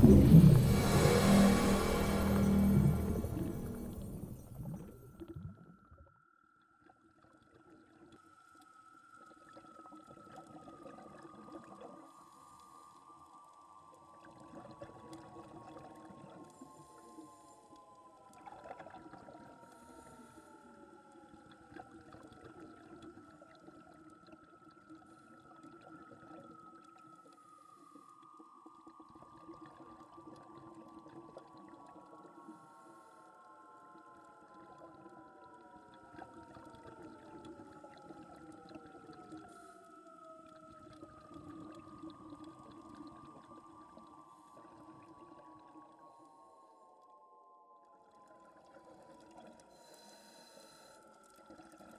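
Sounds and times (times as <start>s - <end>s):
eerie ambient falling tones: 0.0s - 5.1s
low steady hum: 0.0s - 5.6s.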